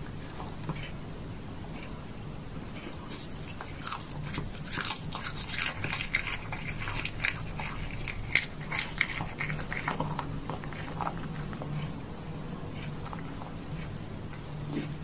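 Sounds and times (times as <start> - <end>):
cat crunching shrimp: 0.0 - 0.9, 2.7 - 12.0, 12.7 - 14.0.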